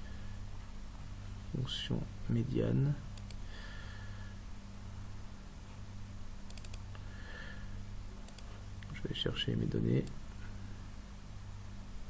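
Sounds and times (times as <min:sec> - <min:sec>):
low electrical hum: 0:00.0 - 0:12.0
computer mouse clicks: 0:03.2 - 0:03.4, 0:06.5 - 0:07.0, 0:08.2 - 0:08.6.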